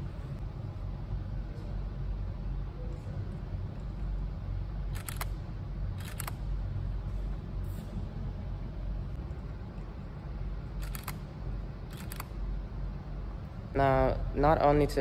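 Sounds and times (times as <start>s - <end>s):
steady low rumble: 0.0s - 15.0s
camera shutter clicks: 6.0s - 6.4s.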